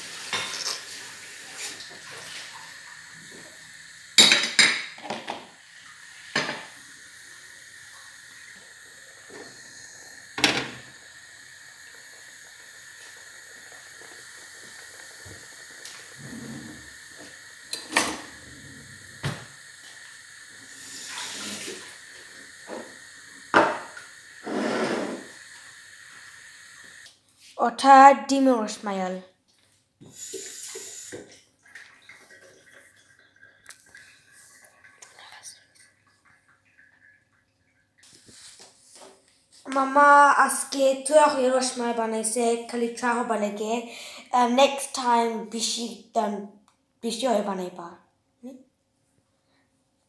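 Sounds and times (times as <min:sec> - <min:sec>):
gas stove hiss: 0:00.0 - 0:28.9, 0:30.0 - 0:31.4, 0:38.0 - 0:46.1.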